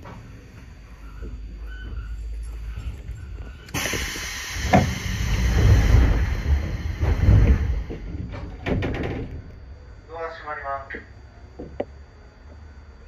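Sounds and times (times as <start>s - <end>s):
low rumble: 2.0s - 10.0s
compressed air hiss: 3.7s - 7.8s.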